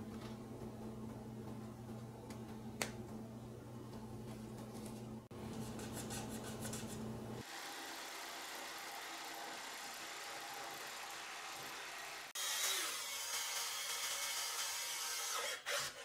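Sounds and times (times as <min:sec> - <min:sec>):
power drill boring holes: 0:07.5 - 0:16.0.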